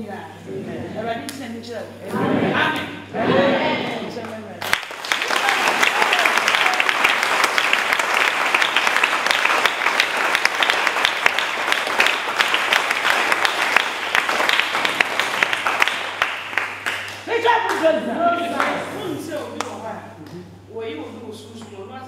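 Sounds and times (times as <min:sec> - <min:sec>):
crowd applauding: 0:04.6 - 0:17.8.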